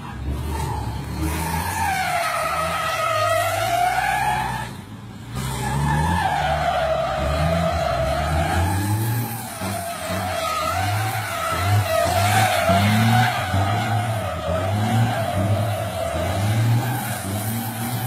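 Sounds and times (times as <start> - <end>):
tyres squealing: 5.6 - 18.0.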